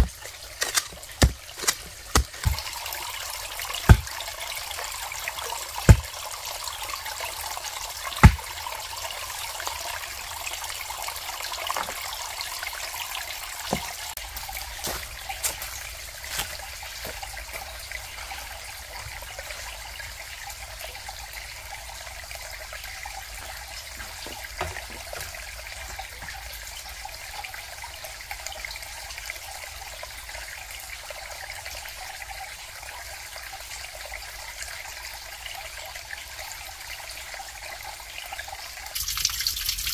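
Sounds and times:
sharp knock or drip: 3.9s - 4.1s, 8.2s - 8.4s
steady rain falling: 13.5s - 20.2s.

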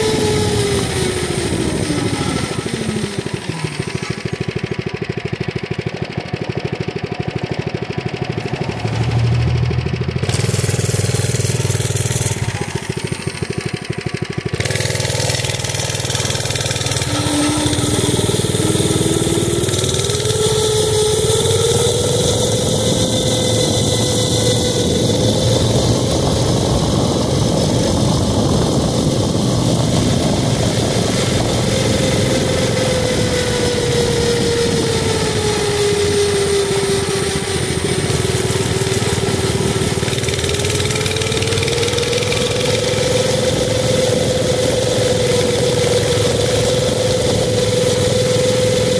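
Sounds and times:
mini bike engine running: 0.0s - 48.9s
wind rushing over microphone: 14.7s - 40.2s.

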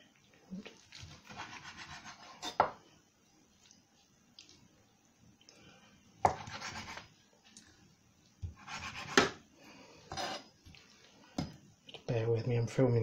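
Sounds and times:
knife cutting on wooden board: 1.2s - 2.6s, 6.3s - 7.1s, 8.4s - 9.4s.

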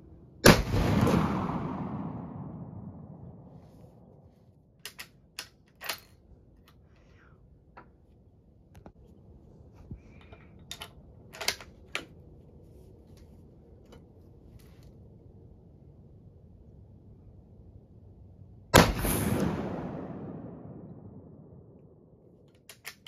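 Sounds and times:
rifle bolt metallic clicks: 4.8s - 6.8s, 22.4s - 23.0s.

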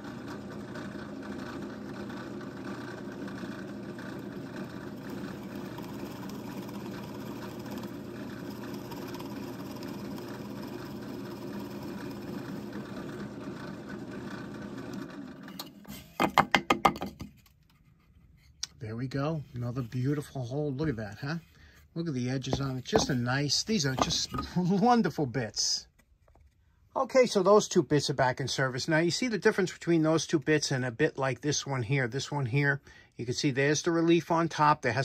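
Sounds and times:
drill press boring wood: 0.0s - 16.4s, 22.4s - 24.8s.

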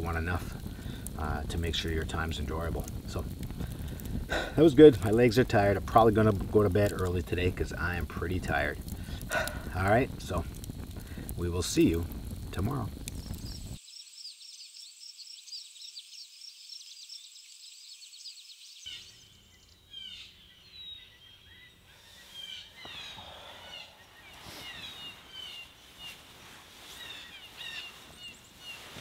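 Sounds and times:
light hiss: 0.0s - 19.8s, 21.8s - 29.0s
bird calls with falling notes: 13.4s - 29.0s.

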